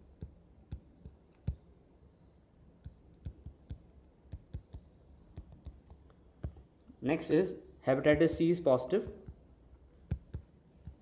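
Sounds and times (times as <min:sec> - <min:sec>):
stylus tapping on tablet screen: 0:00.0 - 0:01.7, 0:02.8 - 0:06.7, 0:08.1 - 0:11.0.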